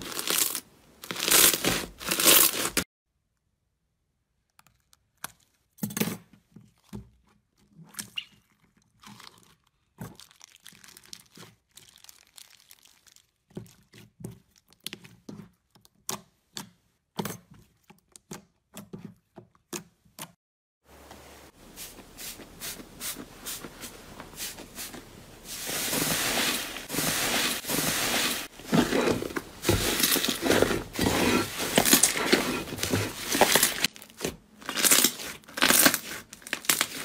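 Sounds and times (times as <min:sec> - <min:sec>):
plastic bag crinkling: 0:00.0 - 0:02.8, 0:09.2 - 0:13.4, 0:22.4 - 0:37.0.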